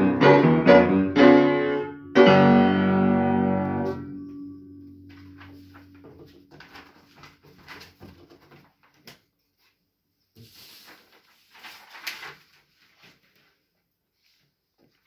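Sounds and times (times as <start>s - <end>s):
upright piano notes: 0.0s - 6.6s
paper rustling and crackling: 4.9s - 9.8s, 10.4s - 15.0s.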